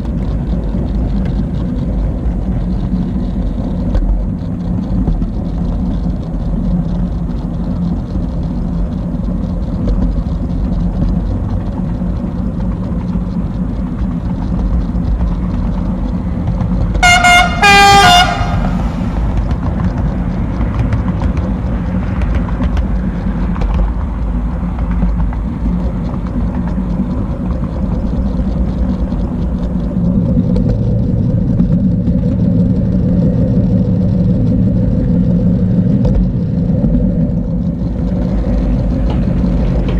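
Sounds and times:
model train humming on track: 0.0 - 39.9
locomotive horn blasts: 17.0 - 19.0.

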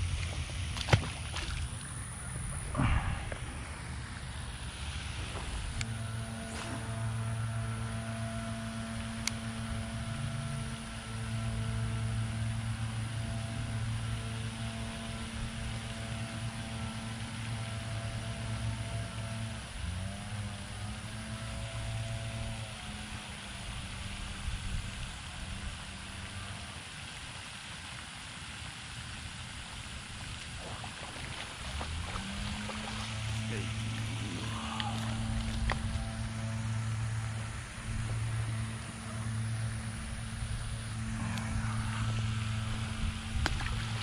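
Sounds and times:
low electrical hum: 0.0 - 44.0
faint light ticks: 9.2 - 9.4.

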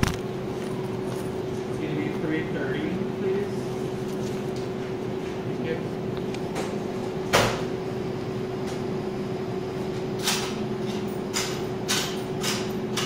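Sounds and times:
equipment hum: 0.0 - 13.0.

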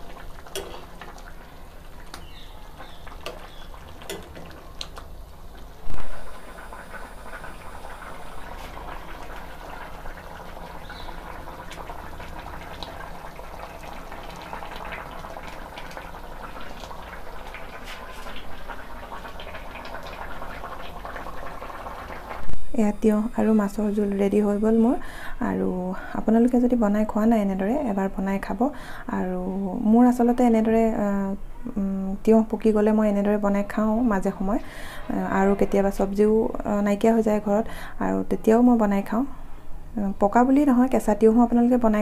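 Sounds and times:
curry bubbling: 0.0 - 25.3
metal spoon clinking against pan: 0.5 - 0.9.

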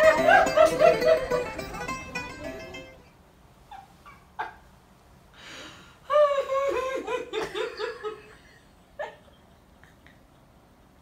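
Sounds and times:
child laughing: 0.0 - 1.6.

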